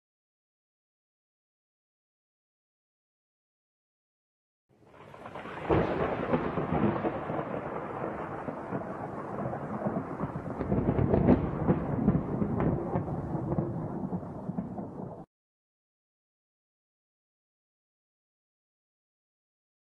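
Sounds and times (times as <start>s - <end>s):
thunder rumbling: 5.0s - 15.3s
thunder cracks: 5.1s - 15.3s.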